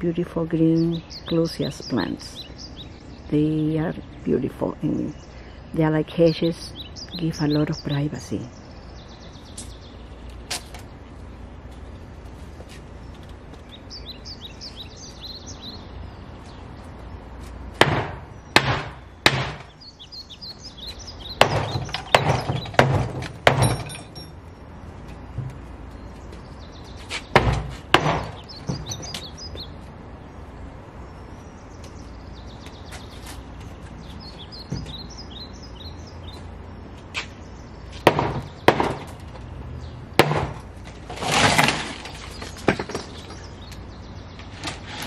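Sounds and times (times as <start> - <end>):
birds chirping: 0.0 - 45.0
metal tool banging on wooden fence: 21.4 - 24.4, 27.3 - 29.2, 40.2 - 40.7.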